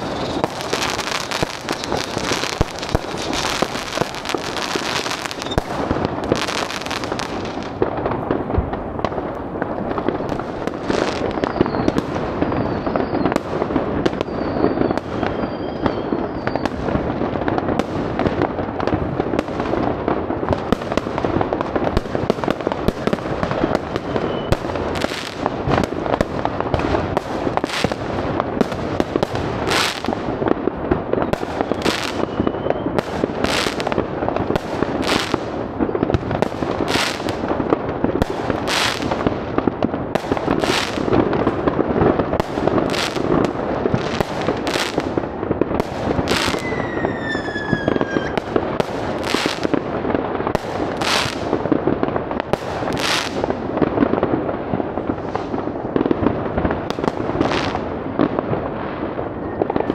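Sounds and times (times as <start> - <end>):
firework whistles: 0.0 - 7.6, 10.2 - 16.9, 22.9 - 25.6, 31.2 - 33.9, 46.1 - 48.6
loud single firework bangs: 0.0 - 9.3, 31.1 - 54.3
fireworks bangs and crackles: 0.0 - 59.9.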